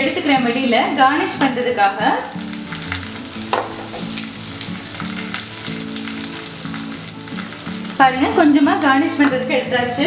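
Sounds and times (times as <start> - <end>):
food sizzling in hot oil: 0.0 - 10.0
sharp knock: 3.5 - 4.1.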